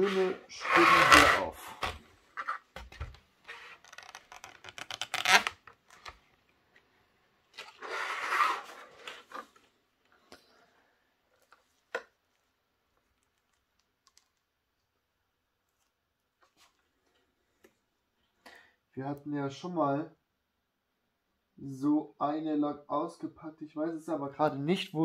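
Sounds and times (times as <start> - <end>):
plastic rustling: 1.4 - 6.3
plastic packaging clicks and crinkling: 13.0 - 14.5.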